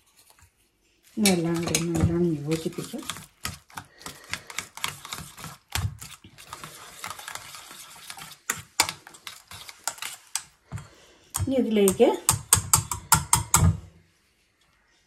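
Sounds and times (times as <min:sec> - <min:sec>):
whisk clattering in steel bowl: 0:01.2 - 0:10.6, 0:11.4 - 0:13.8.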